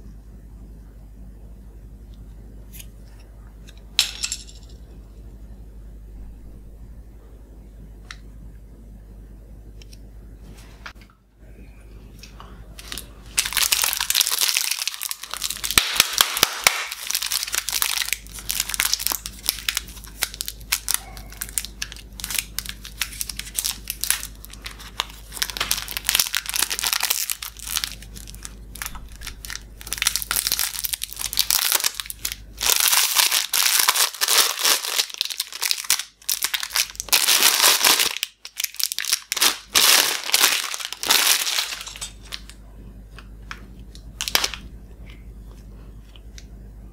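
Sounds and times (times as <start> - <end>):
cellophane wrapper crinkling: 12.8 - 42.6, 43.9 - 45.2.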